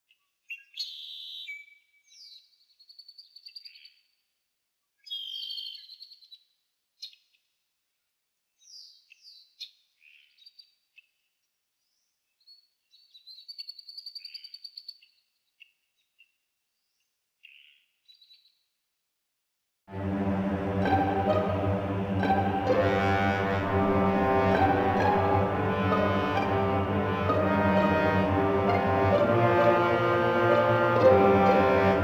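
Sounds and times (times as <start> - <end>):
bird chirps whistles and trills: 0.5 - 3.9, 5.0 - 6.4.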